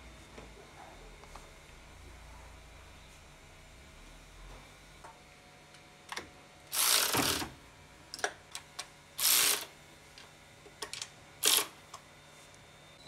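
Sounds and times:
electric screwdriver whirring: 0:06.7 - 0:07.5, 0:09.2 - 0:09.7, 0:11.4 - 0:11.8.

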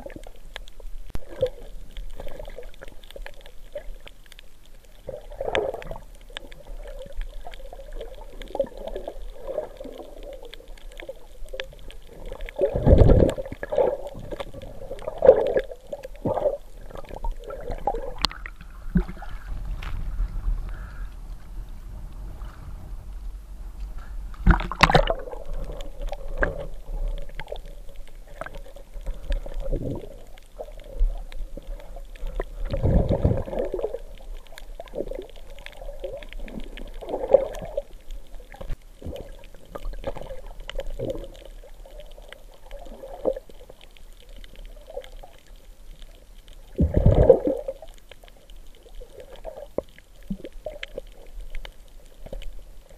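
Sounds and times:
low underwater rushes: 0:00.0 - 0:52.9
muffled underwater swishing: 0:05.1 - 0:43.6.

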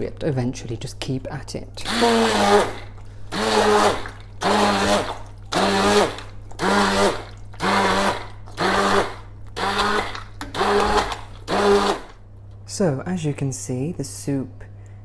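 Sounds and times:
hand blender motor whine: 0:01.8 - 0:12.1.

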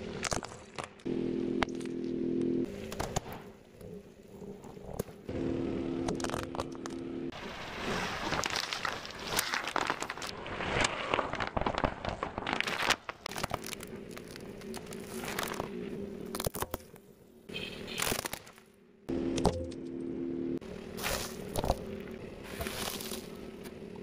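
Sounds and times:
steady low hum: 0:01.0 - 0:07.3
car tyre crushing plastic toys: 0:08.0 - 0:17.0, 0:22.5 - 0:23.8.

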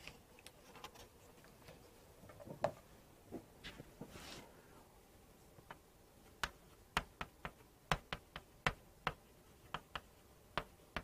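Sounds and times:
chalk tapping on chalkboard: 0:06.4 - 0:11.0.

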